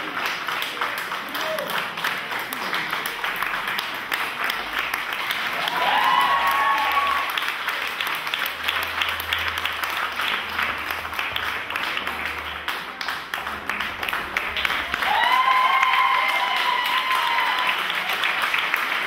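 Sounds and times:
crowd applause: 0.0 - 19.0
crowd whooping cheers: 5.4 - 7.5, 14.9 - 19.0.

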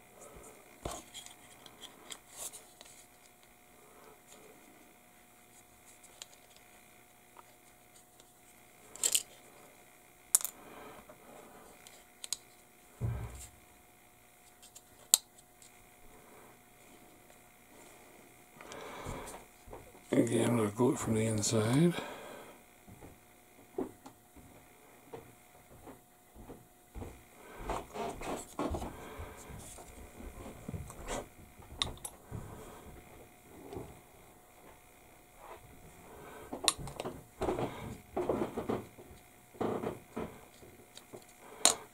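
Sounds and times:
dull thump: 13.0 - 13.4.

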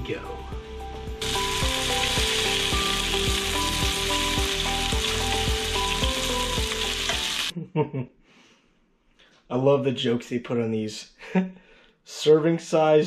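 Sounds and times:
background music with steady beat: 0.0 - 7.4
bacon sizzling in a frying pan: 1.2 - 7.5.

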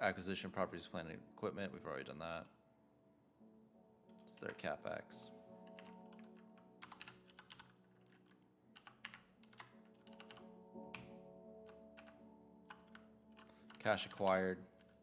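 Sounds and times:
quiet background music: 0.0 - 15.0
keyboard keystrokes: 5.6 - 15.0.

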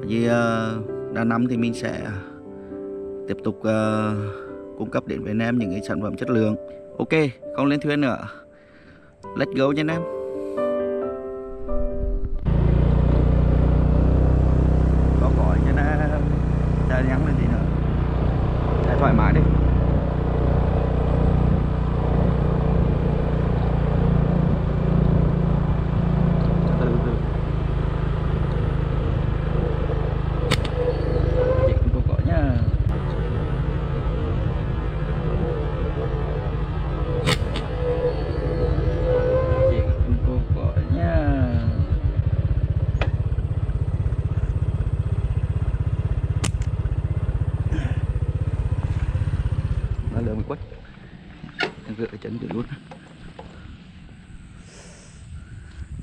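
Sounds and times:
wind and road noise: 11.5 - 56.0
motorbike engine running: 12.4 - 51.6
sharp click: 30.5 - 30.8, 37.2 - 37.7, 46.4 - 46.8.

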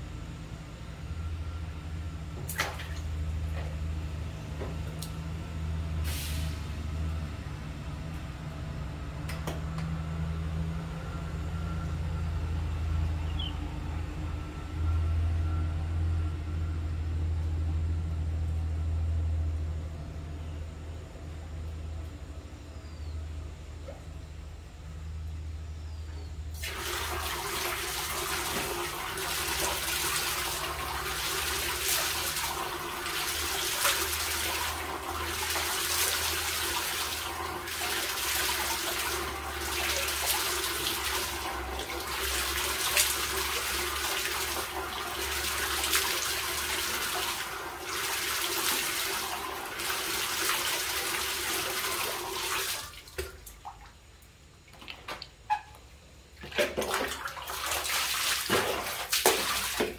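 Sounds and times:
water running into plastic basin: 26.6 - 54.0, 56.4 - 59.9.

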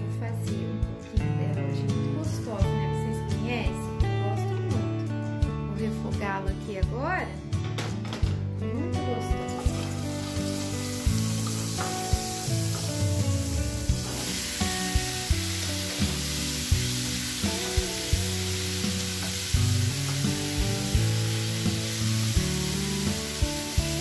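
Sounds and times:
oil sizzling in frying pan: 9.6 - 24.0.

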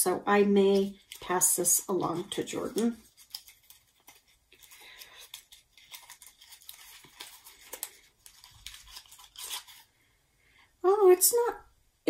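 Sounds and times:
packaging rustling and crinkling: 0.7 - 10.0.

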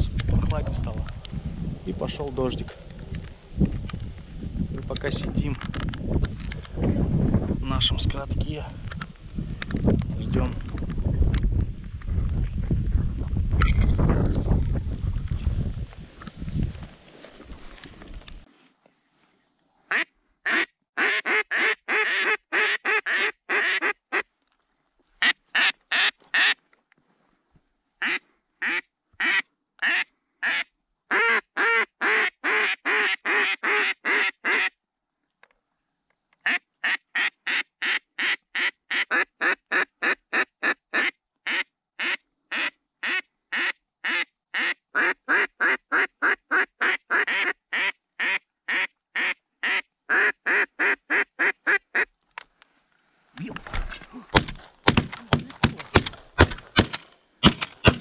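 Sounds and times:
duck call quacks: 19.9 - 24.3, 25.2 - 26.6, 28.0 - 34.8, 36.4 - 52.1.

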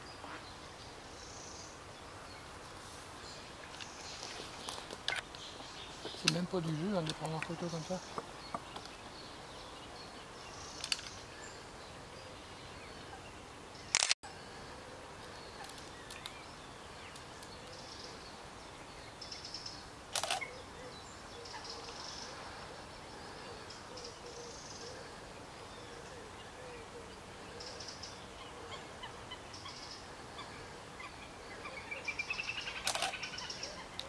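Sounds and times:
faint outdoor hiss: 0.0 - 34.0
camera shutter clicks: 13.9 - 14.2, 20.2 - 20.5, 32.8 - 33.2.

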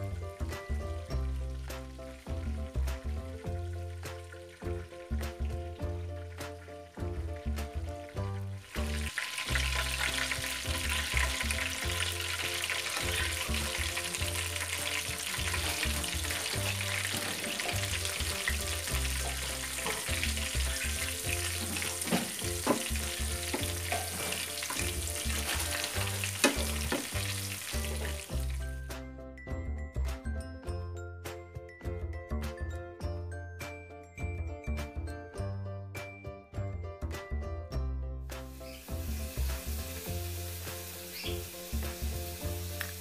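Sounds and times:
food sizzling in hot oil: 0.0 - 28.8, 38.4 - 43.0
background music: 0.0 - 43.0.

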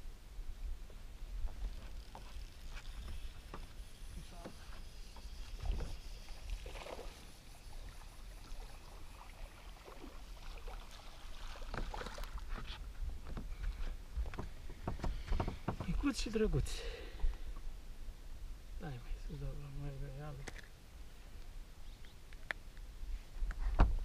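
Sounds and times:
water lapping against boat hull: 7.9 - 16.2
fishing tackle clicks and knocks: 20.4 - 20.7.

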